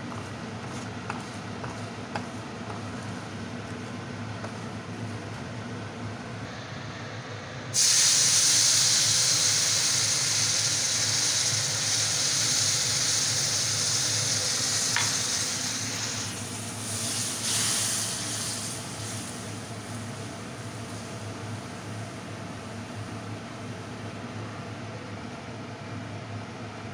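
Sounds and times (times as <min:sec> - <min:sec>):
milk sizzling in hot pan: 0:07.7 - 0:21.7.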